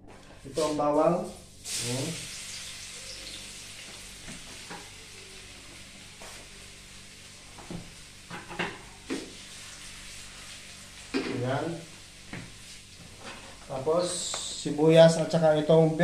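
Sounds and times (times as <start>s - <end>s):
garlic sizzling in hot oil: 1.2s - 13.8s.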